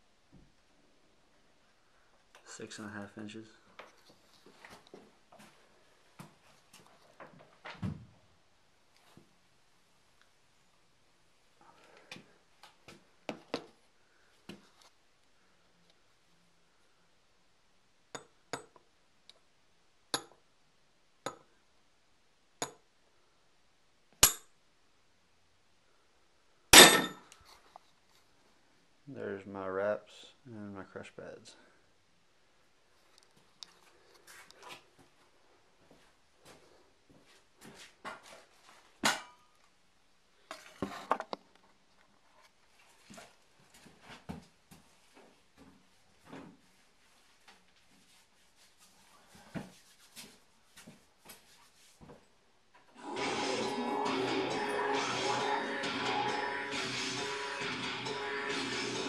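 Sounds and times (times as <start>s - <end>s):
metal object clanging: 26.8s - 27.2s
steel bars clinking: 26.8s - 27.2s.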